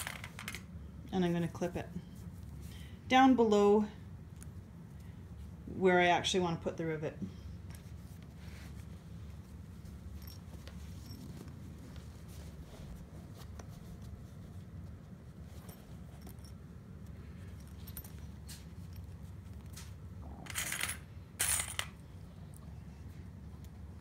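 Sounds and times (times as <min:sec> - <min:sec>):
low steady room hum: 0:00.0 - 0:24.0
fabric rustling: 0:07.6 - 0:20.1.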